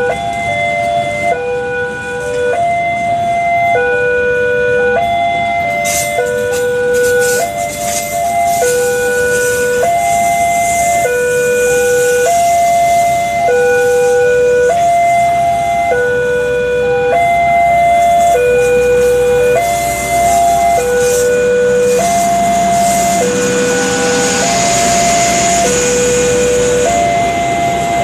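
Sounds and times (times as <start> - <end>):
level-crossing warning alarm: 0.0 - 28.0
train rolling past: 17.5 - 28.0.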